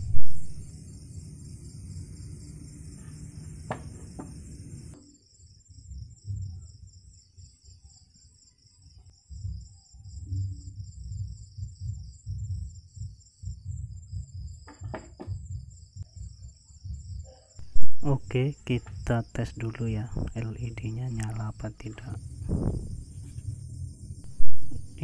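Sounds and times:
low rumble: 0:00.0 - 0:03.6, 0:16.9 - 0:18.4, 0:20.1 - 0:25.0
crickets chirping: 0:00.0 - 0:25.0.

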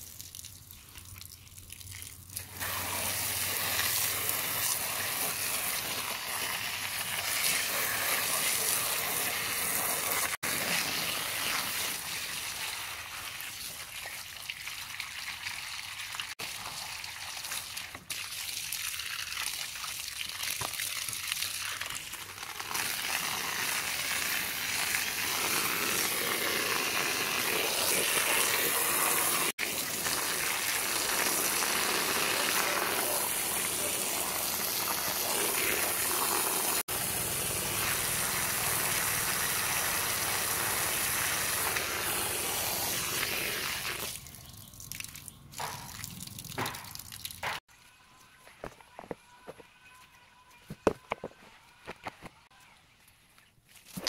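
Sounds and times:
hose spraying water: 0:01.6 - 0:44.3.

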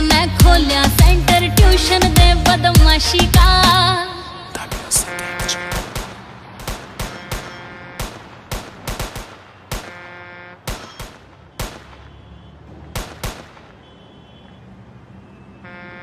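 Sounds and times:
gunshots: 0:04.7 - 0:14.0
steady horn-like tone: 0:05.0 - 0:05.9, 0:09.9 - 0:10.6.

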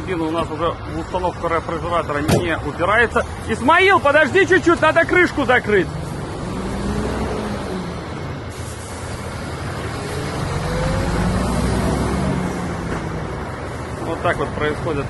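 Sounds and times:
heavy truck engine running: 0:00.0 - 0:15.0.

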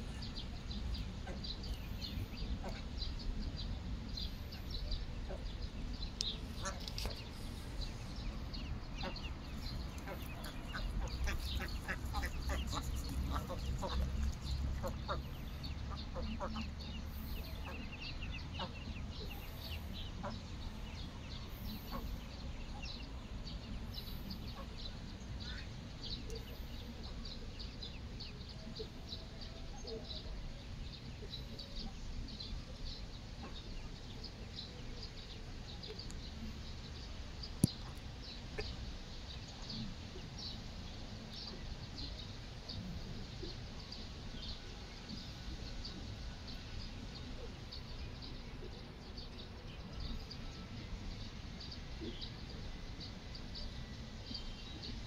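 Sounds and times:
ducklings peeping: 0:06.3 - 0:21.1.

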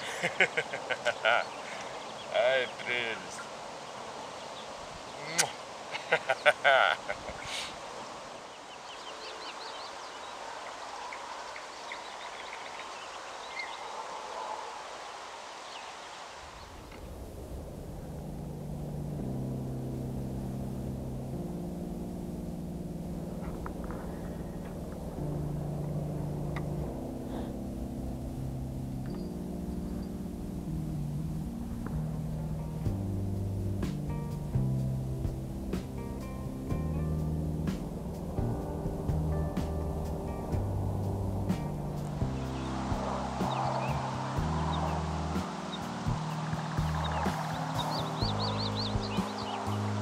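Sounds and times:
birds chirping: 0:00.0 - 0:18.1, 0:23.1 - 0:50.0
slow sustained chord music: 0:16.5 - 0:50.0
low rumble: 0:16.6 - 0:49.2.

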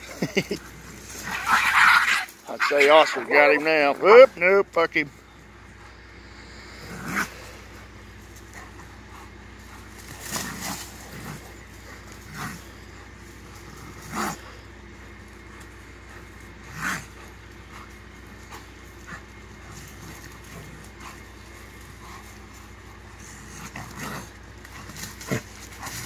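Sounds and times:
animals giving harsh calls: 0:00.9 - 0:04.4, 0:05.1 - 0:08.0, 0:16.0 - 0:26.0
scuffling: 0:07.2 - 0:26.0.

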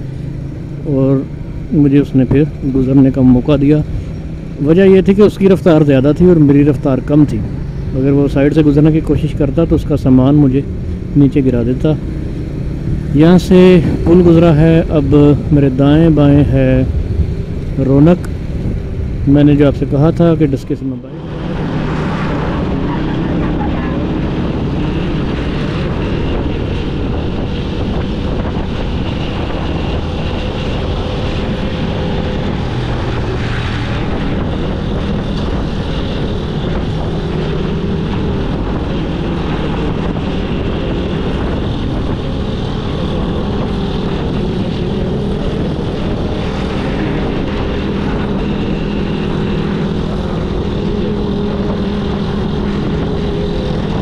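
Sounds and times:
motorcycle engine running: 0:00.0 - 0:19.6, 0:21.3 - 0:54.0.

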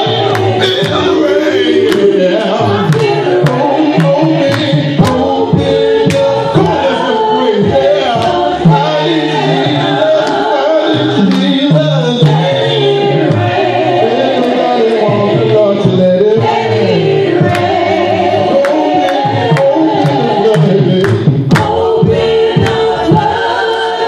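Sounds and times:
man singing through loudspeakers: 0:00.0 - 0:23.4
sharp percussive hits: 0:17.4 - 0:23.4.

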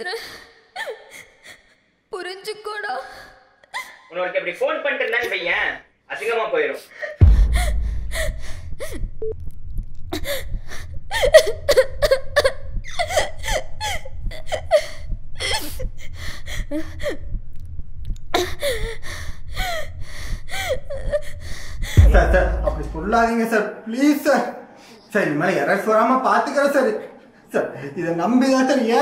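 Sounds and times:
woman crying and sobbing: 0:00.0 - 0:04.1, 0:06.9 - 0:09.1, 0:10.1 - 0:17.3, 0:18.4 - 0:23.3
steady low hum: 0:07.2 - 0:23.4.

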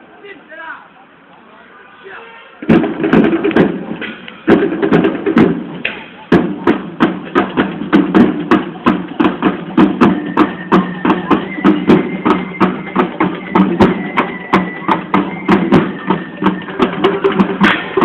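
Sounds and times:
drums beating fast rhythm: 0:02.6 - 0:18.0
sustained pitched instruments: 0:09.8 - 0:18.0.

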